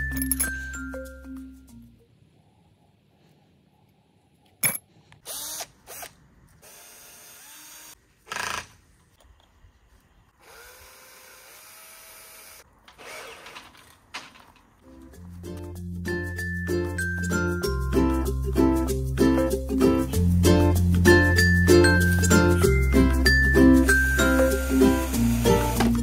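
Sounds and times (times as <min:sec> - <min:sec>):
cordless drill whining: 0:05.2 - 0:08.6, 0:23.9 - 0:26.0.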